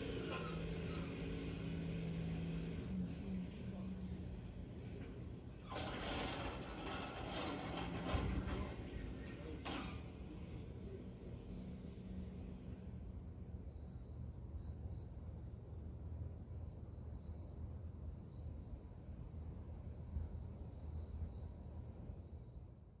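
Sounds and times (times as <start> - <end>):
insects chirping in trills: 0.0 - 5.7, 8.3 - 23.0.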